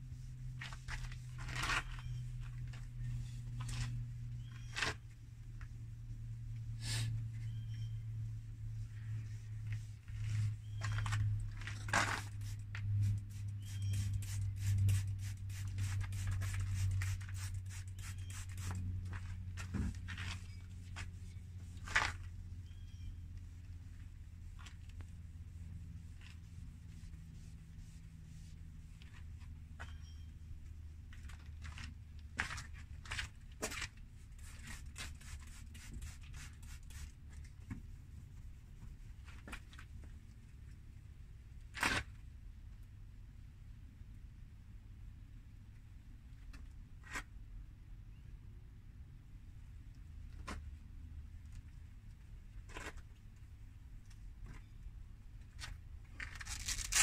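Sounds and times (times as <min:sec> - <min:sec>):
steady low hum: 0:00.0 - 0:41.6
sandpaper scraping plastic: 0:10.1 - 0:18.9, 0:34.3 - 0:37.2, 0:56.3 - 0:57.0.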